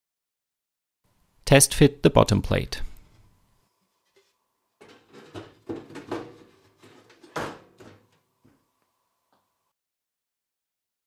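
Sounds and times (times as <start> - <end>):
board knocking in steel box: 4.8 - 8.2.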